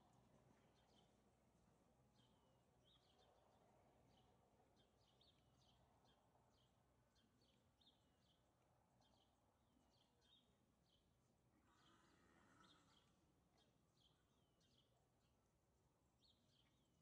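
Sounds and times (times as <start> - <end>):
faint bird chirps: 4.1 - 15.4.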